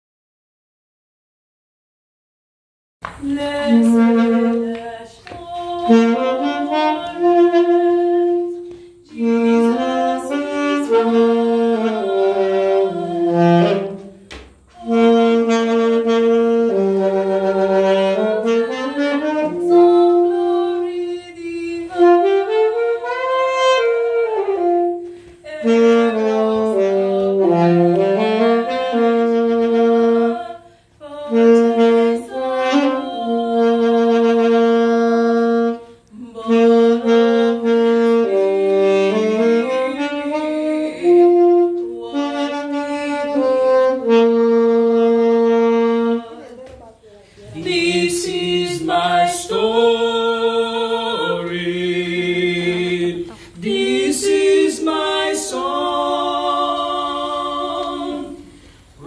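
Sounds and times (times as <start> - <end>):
woman singing a hymn: 3.1 - 58.7.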